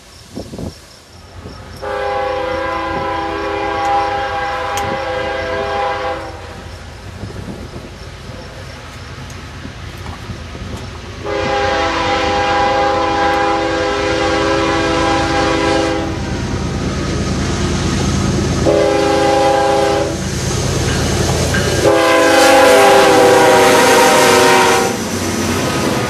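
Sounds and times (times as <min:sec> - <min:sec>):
diesel engine and wheels rumbling: 0:00.0 - 0:26.0
locomotive air horn: 0:01.8 - 0:06.6, 0:11.2 - 0:16.3, 0:18.6 - 0:20.3, 0:21.8 - 0:25.0.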